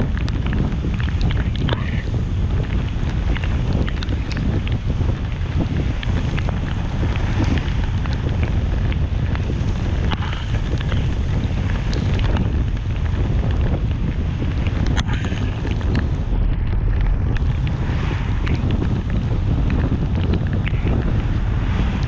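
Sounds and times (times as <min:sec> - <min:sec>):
car driving on wet road: 0:00.0 - 0:22.0.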